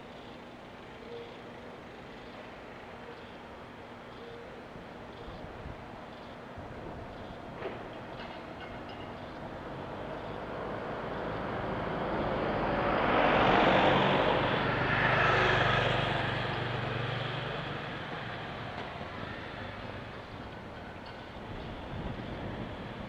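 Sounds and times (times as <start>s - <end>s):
vehicle passing by: 9.9s - 19.8s.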